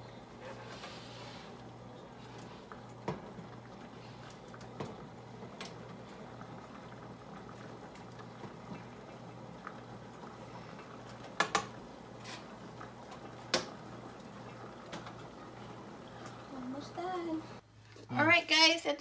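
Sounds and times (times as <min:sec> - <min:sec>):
water boiling in a pot: 0:00.0 - 0:17.6.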